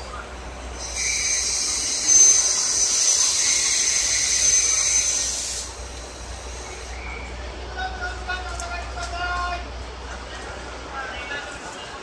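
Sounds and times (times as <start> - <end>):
train brakes hissing: 0.2 - 7.5.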